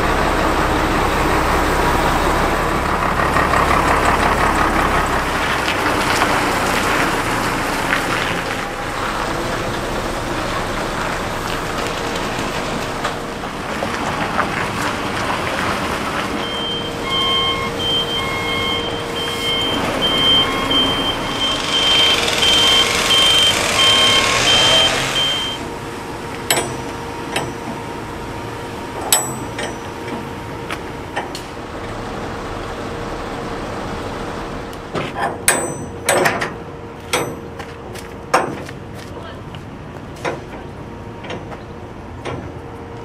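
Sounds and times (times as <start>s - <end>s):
diesel truck engine running: 0.0s - 43.0s
reversing alarm beeps: 16.4s - 25.7s
metal clanks: 29.0s - 30.3s, 35.0s - 37.5s.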